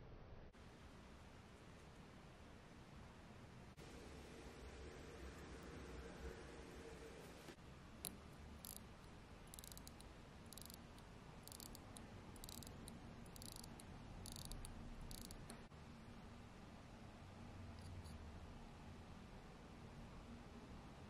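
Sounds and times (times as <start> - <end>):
watch winding ratchet clicks: 8.0 - 8.9, 9.5 - 15.6.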